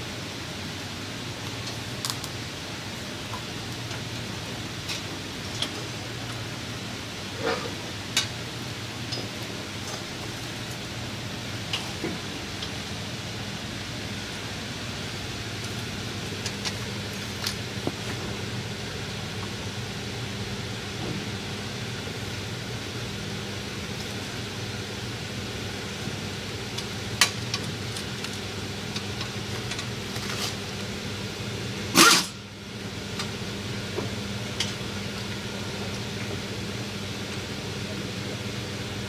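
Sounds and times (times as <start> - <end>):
machinery hum: 0.0 - 39.0.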